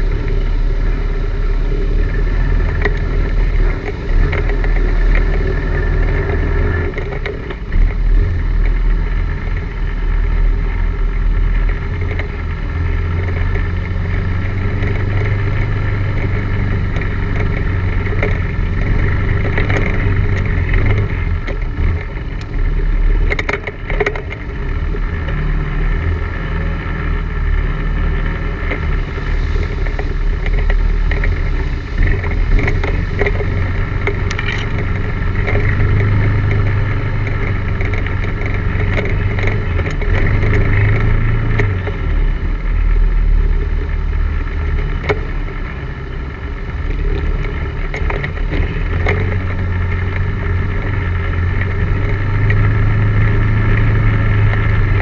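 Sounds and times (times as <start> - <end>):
atv engine running: 0.0 - 55.0
sharp knocks and rattles: 11.4 - 26.1, 27.5 - 42.4.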